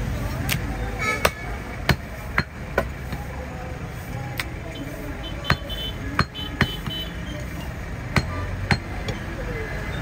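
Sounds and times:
cleaver knocking on wooden block: 0:05.5 - 0:07.0.

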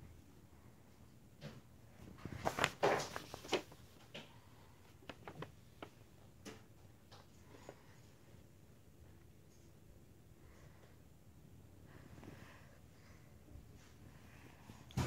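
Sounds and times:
paper map rustling and crinkling: 0:02.0 - 0:08.1
paper crackles: 0:02.1 - 0:06.1.

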